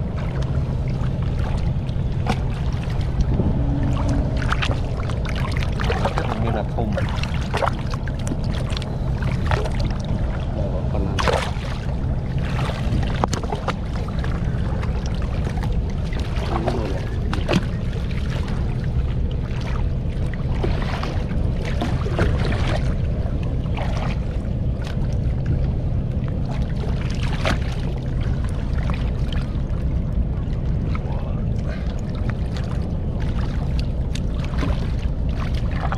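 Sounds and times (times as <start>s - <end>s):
steady low rumble: 0.0s - 35.9s.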